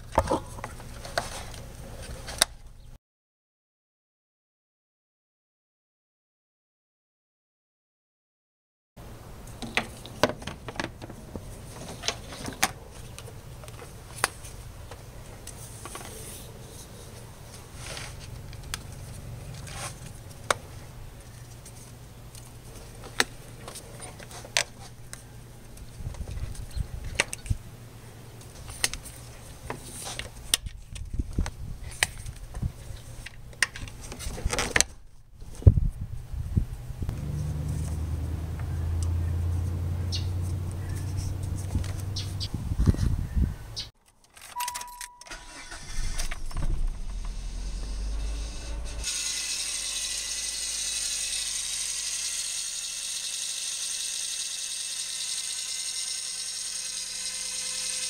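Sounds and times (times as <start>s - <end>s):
low hum: 36.0s - 42.8s, 44.6s - 51.1s.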